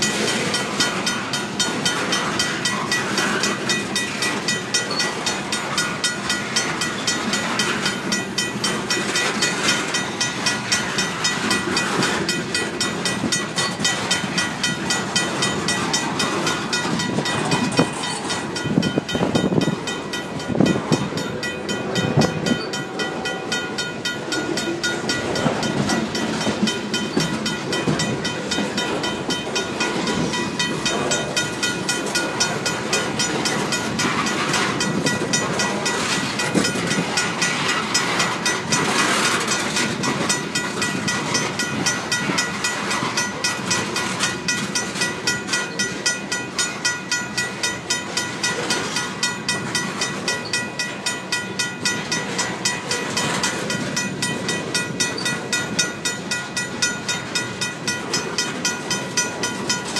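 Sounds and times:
mechanical crossing bell ringing: 0.0 - 59.9
train wheels clacking over rail joints: 0.0 - 59.9.

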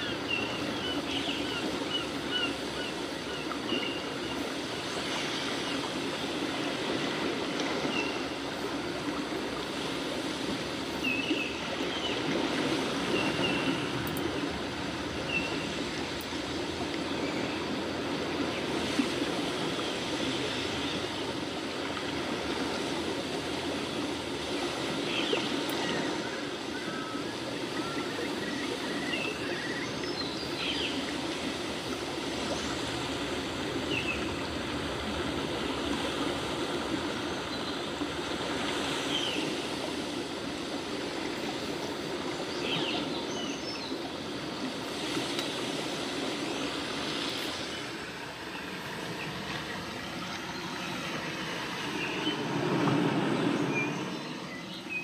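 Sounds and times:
steady rushing noise: 43.1 - 55.0.

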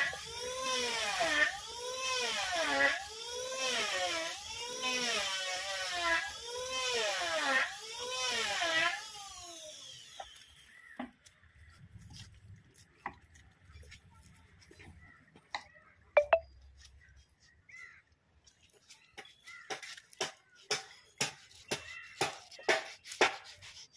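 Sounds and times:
sandpaper rubbing on wood: 0.0 - 9.0, 18.8 - 23.9.

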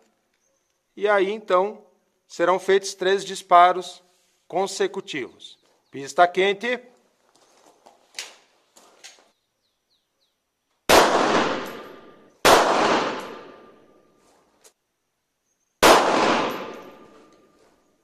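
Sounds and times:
handgun shots with echo: 10.9 - 13.8, 15.8 - 17.4.

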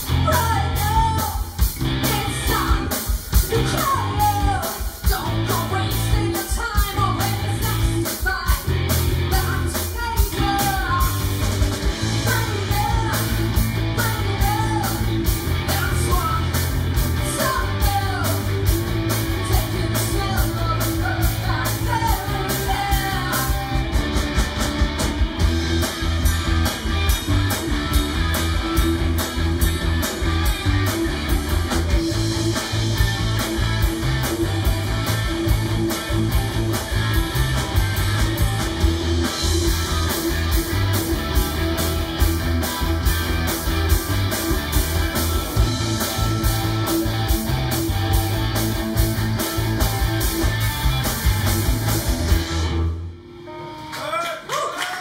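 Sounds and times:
live rock band playing: 0.0 - 54.6
woman singing: 0.1 - 8.7, 9.3 - 11.3, 12.2 - 16.6, 17.2 - 18.5, 19.3 - 23.7.

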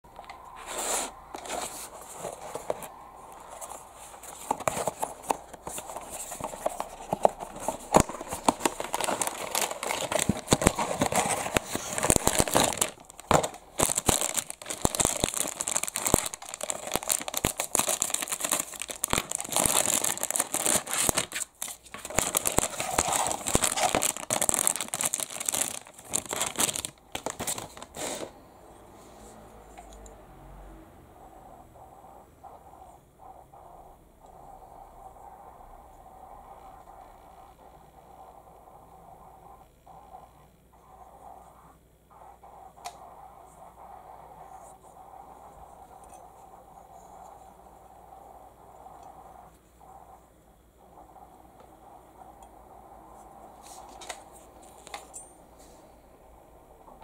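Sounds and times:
plastic bag crinkling: 4.2 - 28.0
packaging clicks and taps: 4.3 - 27.9
cardboard box opening: 4.3 - 28.3.

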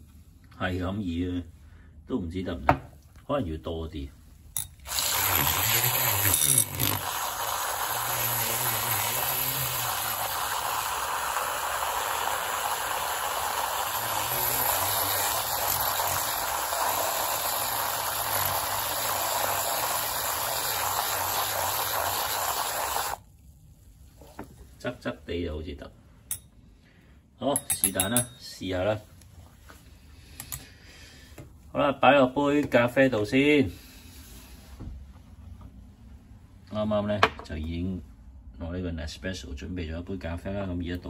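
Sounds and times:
milk frother whirring: 4.7 - 23.4.

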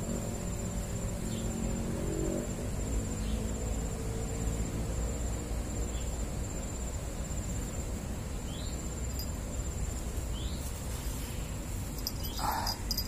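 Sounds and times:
low steady rumble: 0.0 - 13.0
faint chirps: 10.3 - 13.0
insect trilling: 11.4 - 13.0.

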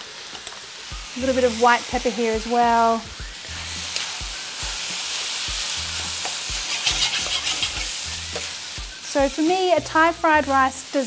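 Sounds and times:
rice sizzling in a wok: 0.0 - 11.0
utensil scraping a wok: 3.4 - 9.5.

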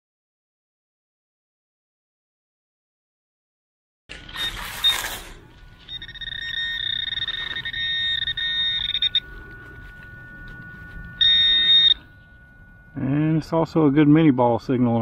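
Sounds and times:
metal detector buzzing: 4.1 - 15.0
faint steady tone: 4.3 - 15.0.

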